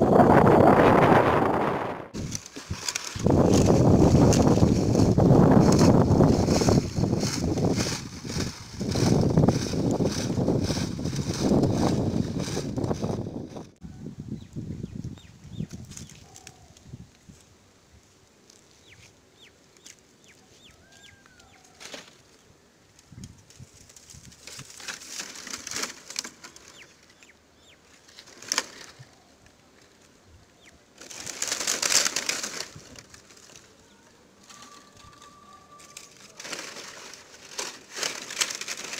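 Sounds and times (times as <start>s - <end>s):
dry palm fronds rustling: 0.0s - 13.8s, 15.5s - 38.9s
small birds chirping: 14.3s - 16.8s, 18.7s - 23.2s, 26.4s - 28.3s, 29.1s - 30.9s.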